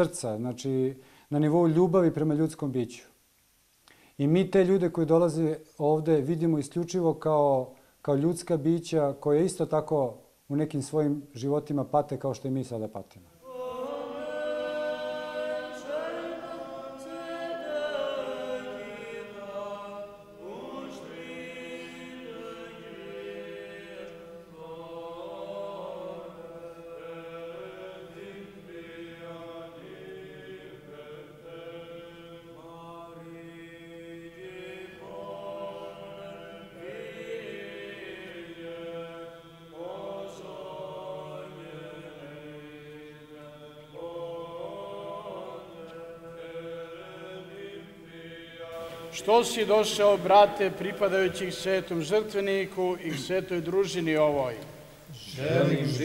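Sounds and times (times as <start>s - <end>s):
male choir chanting: 13.4s - 56.0s.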